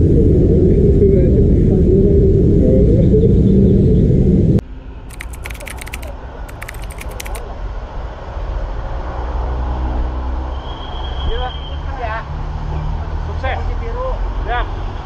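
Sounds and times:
rapid clicking: 5.1s - 7.4s.

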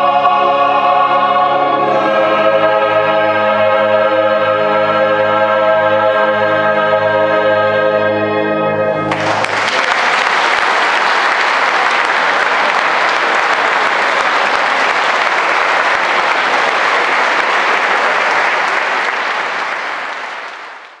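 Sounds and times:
audience applauding: 9.1s - 21.0s.

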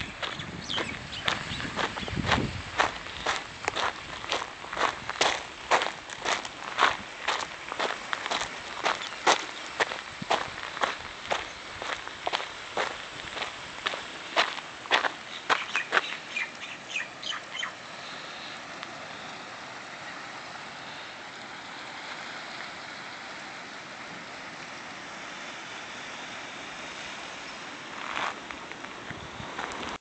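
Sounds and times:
bird chirps: 0.0s - 2.2s, 15.3s - 17.8s
footsteps crunching on gravel: 0.0s - 16.6s, 27.9s - 30.0s
distant water: 0.0s - 30.0s
wind: 0.0s - 30.0s.

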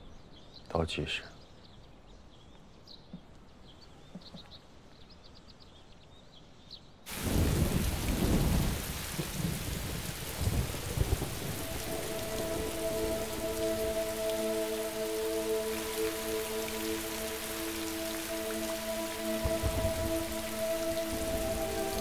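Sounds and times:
heavy rain pouring: 7.1s - 22.0s
deep rumbling thunder: 7.2s - 12.7s, 19.5s - 20.2s
held music notes: 10.5s - 22.0s.

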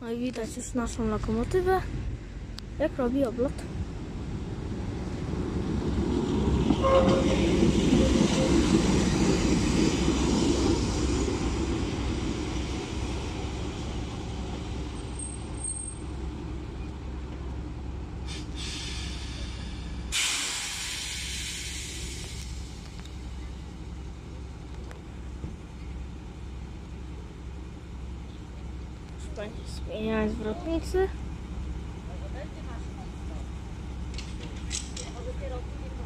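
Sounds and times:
diesel locomotive rumbling past: 0.0s - 36.0s
burst of hiss: 18.3s - 22.7s.

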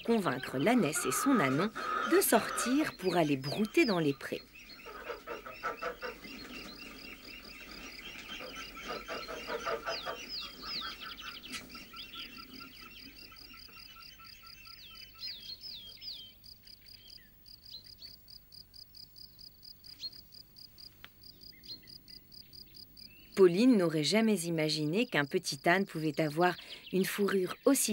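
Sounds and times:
birds calling: 0.0s - 18.6s, 19.2s - 27.9s
crickets chirping: 4.7s - 23.7s.

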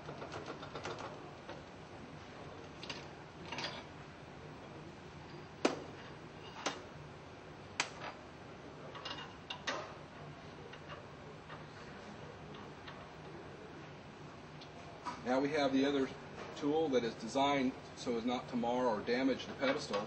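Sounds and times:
faint steady hum: 0.0s - 20.0s
metal tools clicking and clinking: 8.9s - 9.9s.

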